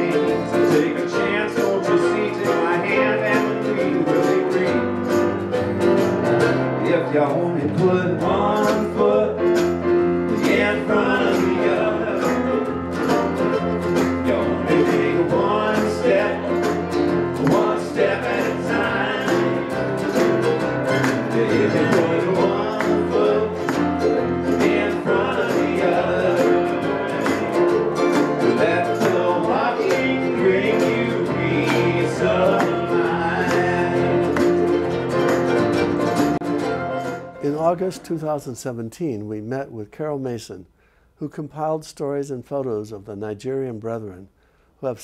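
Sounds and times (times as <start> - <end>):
men singing: 0.0 - 4.9, 6.8 - 9.7, 10.3 - 12.7, 14.1 - 34.7
acoustic guitar strummed: 0.0 - 38.0
keyboard: 0.0 - 38.3
hand drum beat: 10.4 - 36.6.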